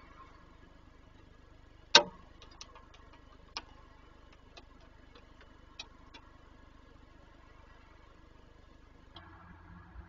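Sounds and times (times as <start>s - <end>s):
raindrops dripping on wooden box: 1.9s - 6.4s.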